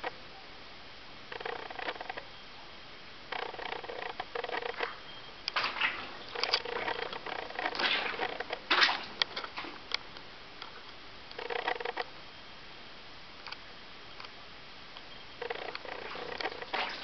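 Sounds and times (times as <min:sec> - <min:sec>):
faint background noise: 0:00.0 - 0:17.0
footsteps on wet stony floor: 0:04.8 - 0:09.9.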